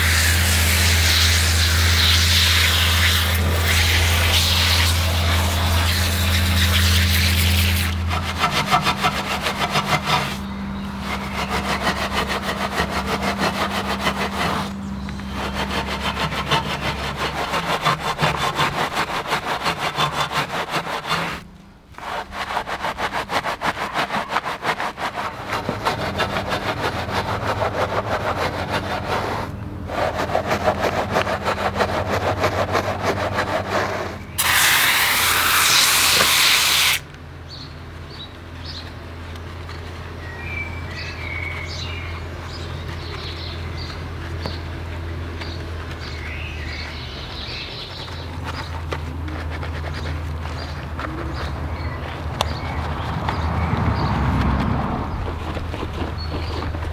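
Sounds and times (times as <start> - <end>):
pump sprayer hissing: 0.0 - 10.5, 33.8 - 37.1
low steady hum: 0.0 - 34.4
brush scrubbing a wheel: 0.0 - 37.0, 42.5 - 56.9.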